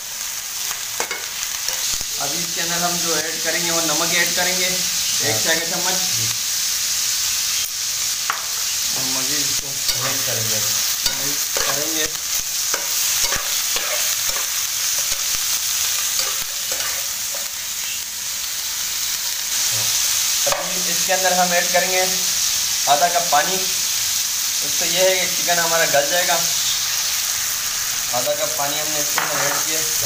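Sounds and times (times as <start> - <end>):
chicken sizzling in hot oil: 0.0 - 30.0
spatula scraping and knocking pan: 11.0 - 11.8, 12.7 - 15.4, 16.0 - 17.5.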